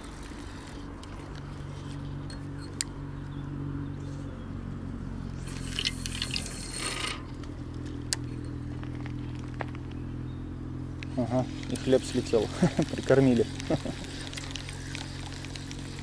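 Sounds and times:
steady low hum: 0.0 - 16.0
fishing line hissing off spool: 5.4 - 7.3, 11.4 - 16.0.

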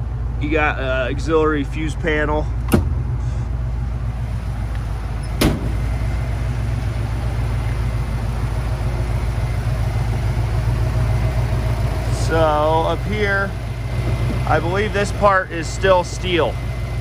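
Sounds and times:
car engine idling: 0.0 - 17.0
sharp knock: 5.4 - 5.8.

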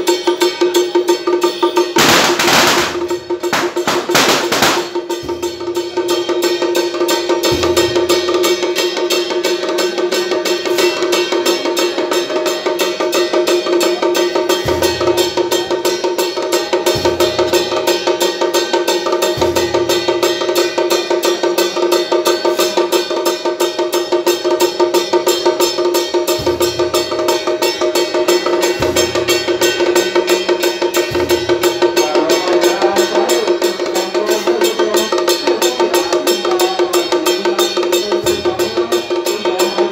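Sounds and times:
fast clattering percussion strikes: 0.0 - 39.9
steady ringing tone: 0.0 - 39.9
deep drum beat: 1.4 - 39.9.

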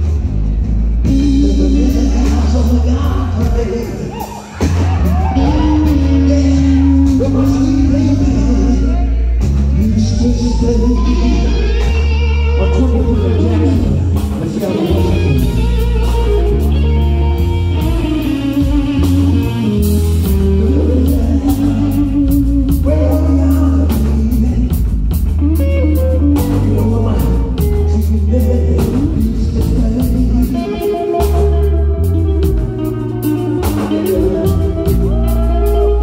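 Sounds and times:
blues-rock band playing: 0.0 - 36.0
electric guitar with bent notes: 0.0 - 36.0
man singing into a microphone: 1.0 - 4.4, 5.2 - 15.7, 20.3 - 25.0, 26.1 - 33.0, 33.8 - 36.0.

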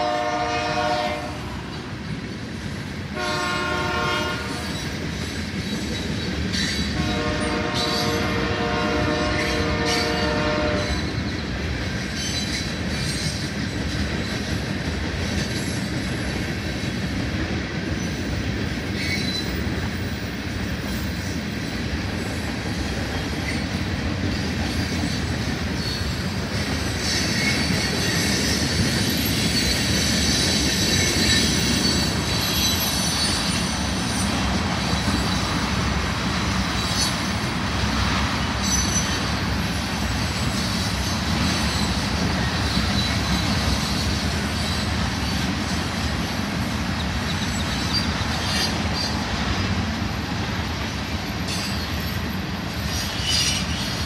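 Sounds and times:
train wheels rumbling on rail: 0.0 - 54.0
high wheel squeal: 26.9 - 35.6, 36.5 - 37.4, 38.5 - 45.4, 51.2 - 54.0.

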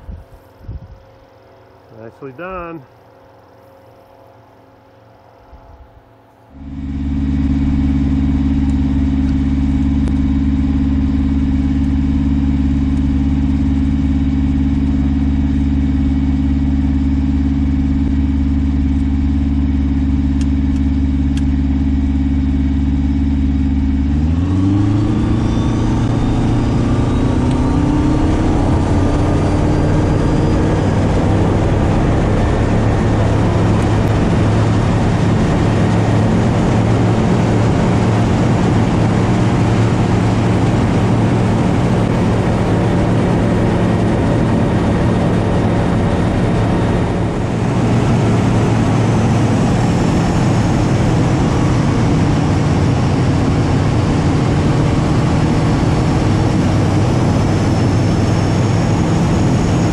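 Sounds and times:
light aircraft engine and propeller: 0.0 - 59.9.

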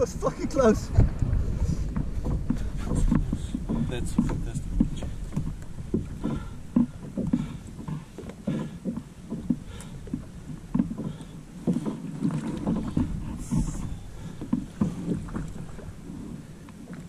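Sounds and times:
water sloshing against plastic hull: 0.0 - 17.0.

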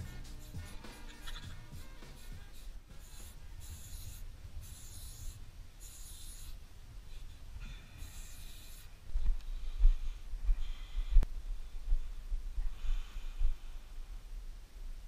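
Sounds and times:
spray paint can hissing: 0.0 - 6.6, 8.0 - 8.9.

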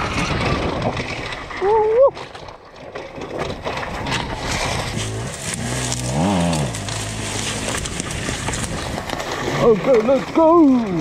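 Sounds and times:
dirt bike engine revving: 4.0 - 10.3.

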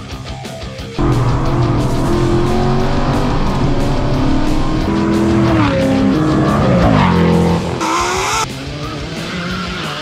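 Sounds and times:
quieter lighter engine: 1.0 - 7.8
race car engine revving: 1.0 - 10.0.

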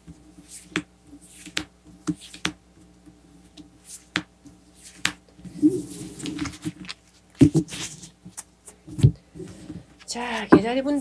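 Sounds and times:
cards sliding: 0.4 - 2.6, 3.6 - 8.8.

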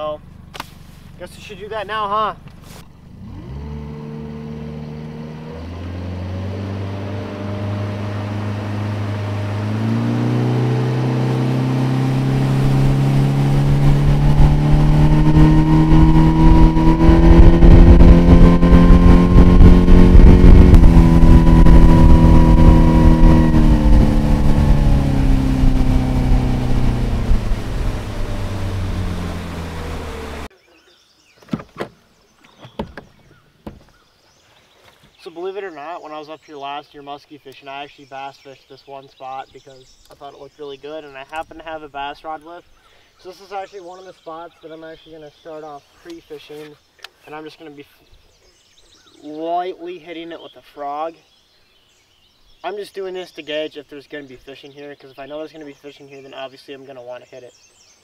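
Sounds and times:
outboard motor running: 2.4 - 30.5.

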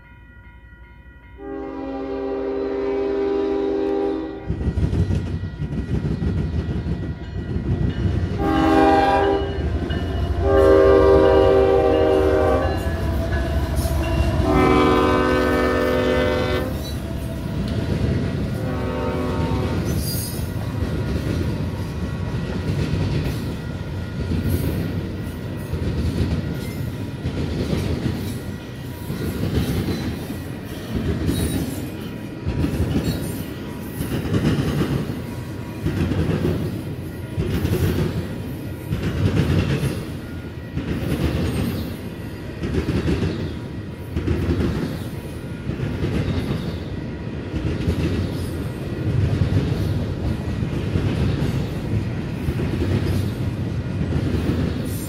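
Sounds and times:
train wheels rumbling on rails: 1.3 - 55.0
rhythmic clickety-clack: 4.5 - 8.4, 16.7 - 18.6, 19.7 - 55.0.

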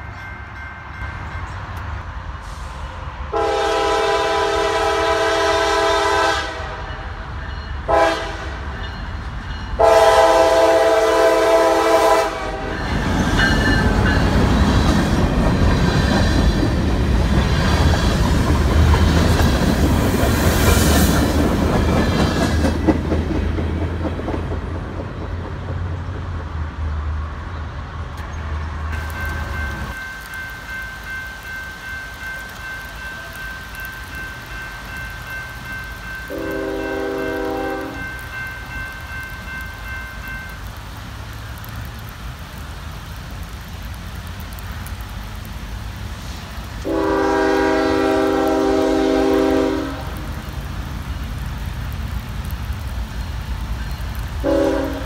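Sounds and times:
crossing warning bell ringing: 0.0 - 2.1, 6.2 - 10.6, 11.3 - 14.9, 29.0 - 40.8
train rumbling past: 0.0 - 55.0
locomotive air horn: 3.3 - 6.9, 7.9 - 8.7, 9.8 - 12.8, 36.3 - 38.1, 46.8 - 50.2, 54.4 - 55.0
wheels clacking over rails: 12.8 - 26.6.

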